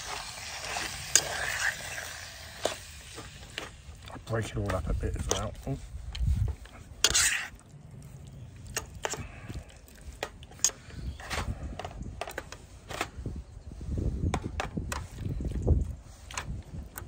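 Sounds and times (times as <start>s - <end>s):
utensil scraping frying pan: 0.0s - 3.8s, 6.9s - 7.6s.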